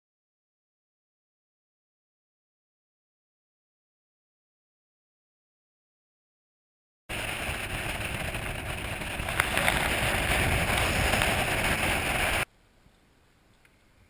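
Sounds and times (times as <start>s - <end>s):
boat motor: 7.1s - 12.4s
wind rush on microphone: 7.1s - 12.5s.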